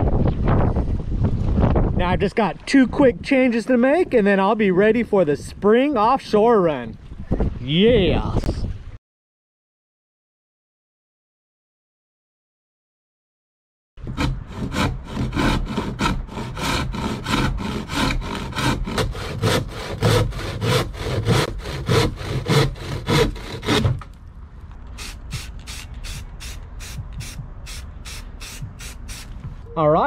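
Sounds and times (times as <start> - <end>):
sandpaper rubbing on wood: 25.0 - 29.4
spray-paint can hissing: 25.0 - 29.4.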